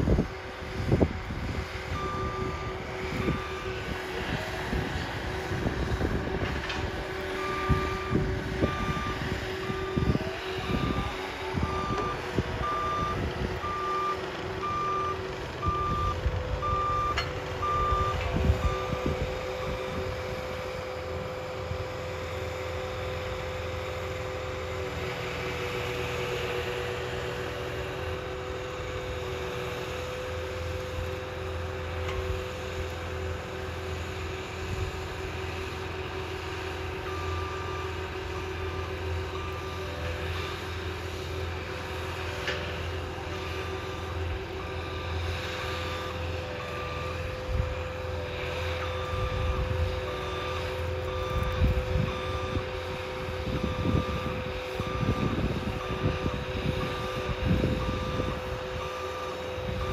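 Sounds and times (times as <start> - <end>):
engine and hydraulic drone: 0.0 - 59.9
backup alarm beeping: 7.4 - 9.2, 10.7 - 19.8, 48.9 - 52.8, 53.4 - 59.9.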